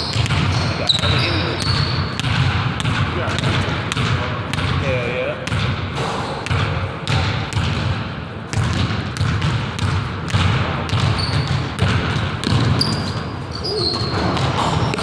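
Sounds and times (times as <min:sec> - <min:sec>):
basketball bouncing on wooden floor: 0:00.0 - 0:15.0
short high squeaks: 0:12.8 - 0:14.3.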